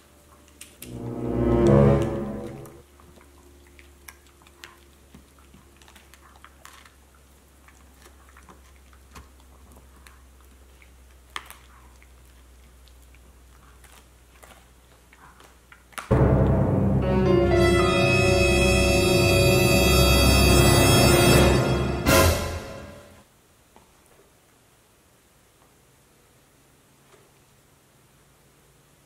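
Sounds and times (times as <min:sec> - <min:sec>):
dog gnawing on a bone: 0:02.9 - 0:16.1.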